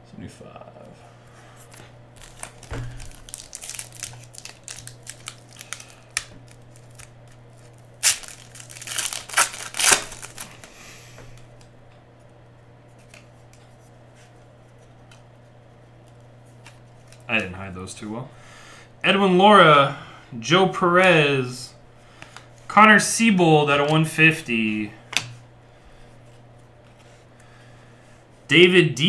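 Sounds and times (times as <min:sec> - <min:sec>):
foil wrapper crinkling and tearing: 0:01.7 - 0:10.7.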